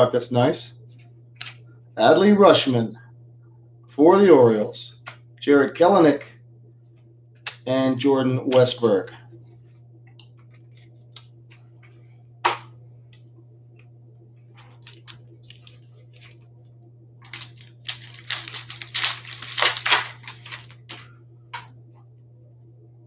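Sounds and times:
foil wrapper crackling: 0:14.6 - 0:16.6, 0:17.2 - 0:21.1.

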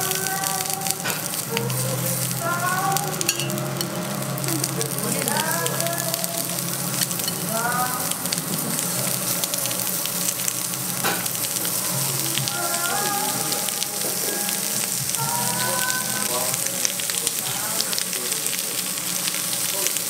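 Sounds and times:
meat sizzling on a grill: 0:00.0 - 0:20.0.

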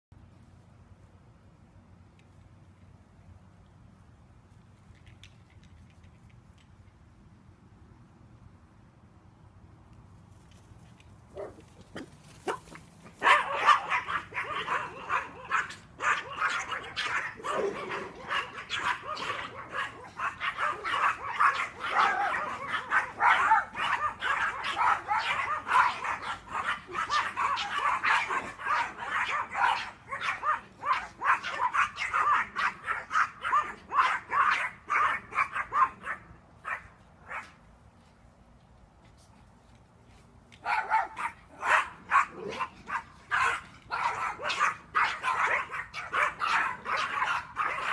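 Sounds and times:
dogs barking and yipping: 0:11.3 - 0:37.6, 0:40.6 - 0:47.9.

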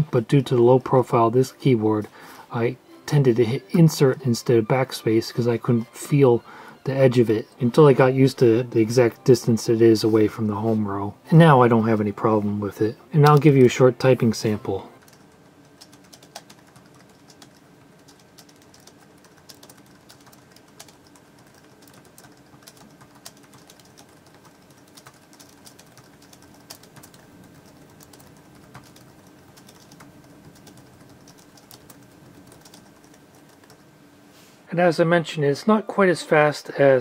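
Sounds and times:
keyboard typing: 0:14.7 - 0:33.9.

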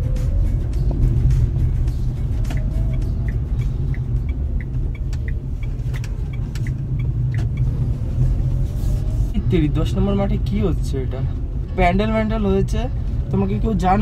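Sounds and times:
car engine and tyre rumble: 0:00.0 - 0:14.0
light regular ticking: 0:00.1 - 0:08.7.

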